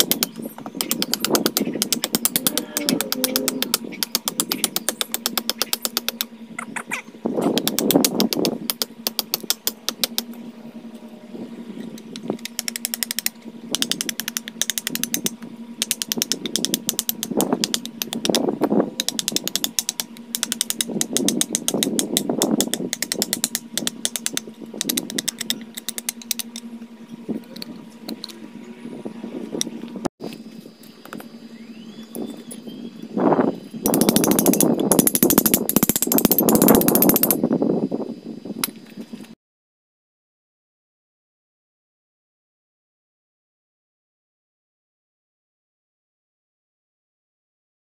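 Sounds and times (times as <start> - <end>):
hatchet chopping and scraping wood: 0.0 - 6.3, 7.4 - 10.4, 12.0 - 26.7, 33.8 - 37.4
steady low hum: 0.0 - 39.4.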